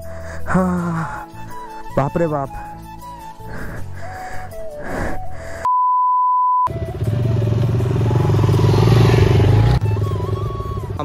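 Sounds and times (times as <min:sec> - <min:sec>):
censor bleep: 0:05.7 - 0:06.7
motorcycle engine revving: 0:06.7 - 0:11.0.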